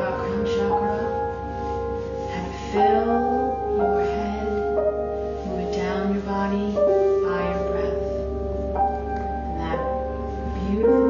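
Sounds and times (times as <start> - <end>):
sustained melodic tones: 0.0 - 11.0.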